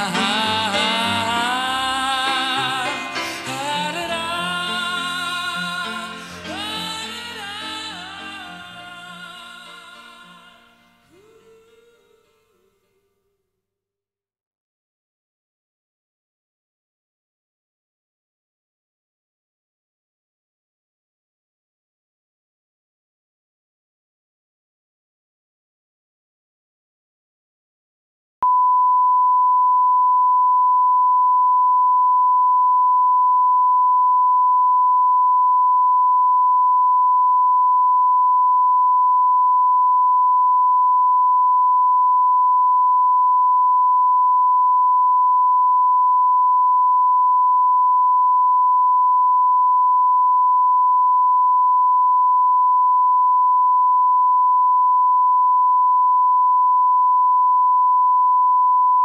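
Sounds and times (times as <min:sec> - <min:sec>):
steady sine test tone: 0:28.4 - 0:59.0.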